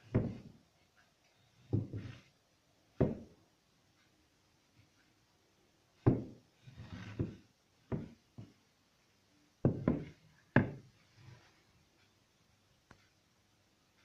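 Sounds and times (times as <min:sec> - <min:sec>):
cutting board knocking on wood: 0:03.0 - 0:03.2, 0:07.1 - 0:08.1, 0:09.6 - 0:10.8
cutting board scraping on wood: 0:06.6 - 0:08.1.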